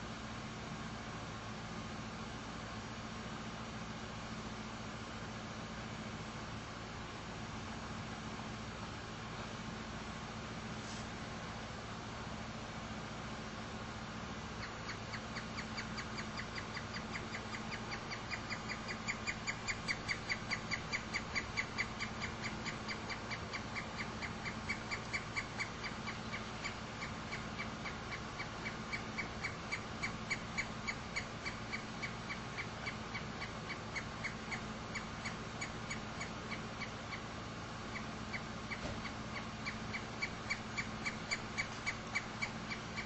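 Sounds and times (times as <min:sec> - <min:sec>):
woodpecker calling: 0:14.4 - 0:43.0.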